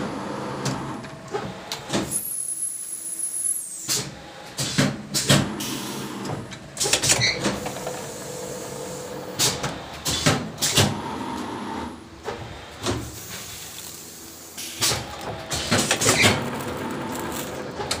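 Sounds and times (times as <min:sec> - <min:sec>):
machine humming: 0:11.0 - 0:18.0.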